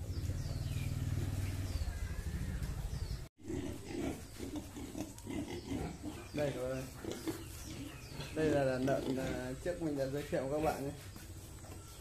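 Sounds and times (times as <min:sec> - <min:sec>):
small birds chirping: 0:00.0 - 0:12.0
pigs grunting: 0:03.4 - 0:10.8.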